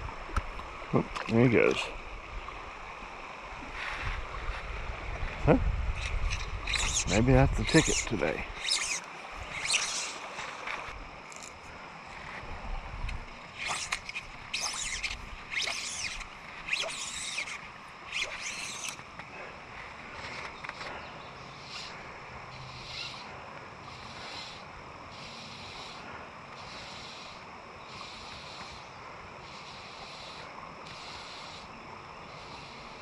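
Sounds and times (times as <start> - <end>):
fly line zipping pulls: 6.0 - 11.6, 13.5 - 19.1.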